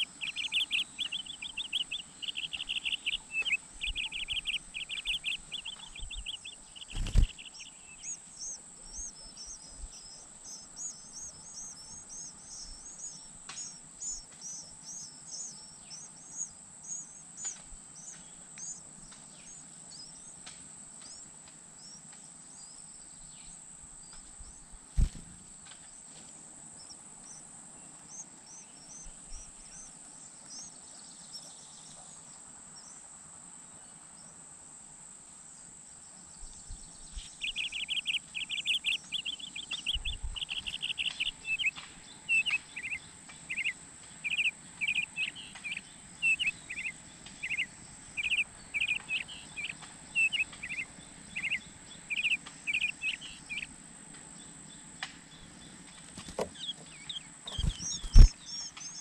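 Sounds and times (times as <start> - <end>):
faint high chirps: 0.0 - 20.3, 36.4 - 53.7, 55.4 - 59.0
nestlings peeping: 0.0 - 26.0, 26.7 - 33.0, 36.0 - 59.0.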